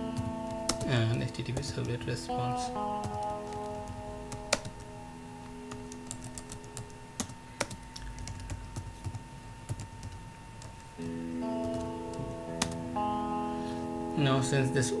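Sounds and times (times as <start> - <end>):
faint background music: 0.0 - 15.0
keyboard typing: 0.2 - 4.9, 5.7 - 11.0, 11.6 - 12.8.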